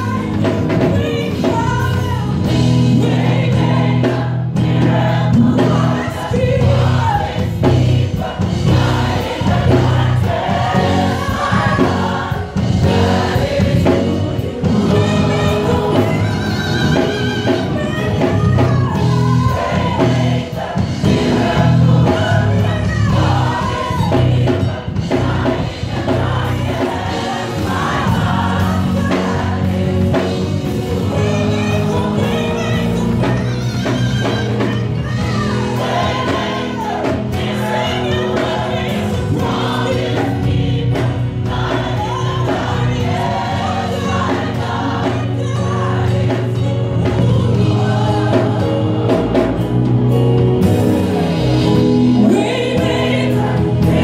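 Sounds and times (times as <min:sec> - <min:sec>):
woman lead singer: 0:00.0 - 0:03.9, 0:10.6 - 0:25.6
gospel choir singing: 0:00.0 - 0:54.0.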